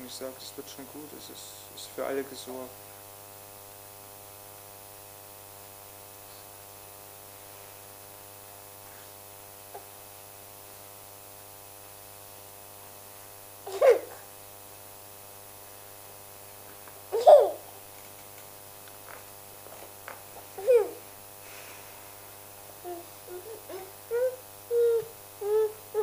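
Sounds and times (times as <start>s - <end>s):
electrical mains hum: 0.0s - 26.0s
toddler squealing: 20.6s - 21.0s, 22.9s - 26.0s.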